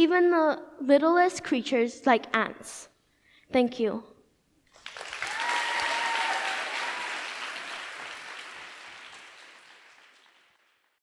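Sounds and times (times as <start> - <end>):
audience applauding: 4.7 - 11.0.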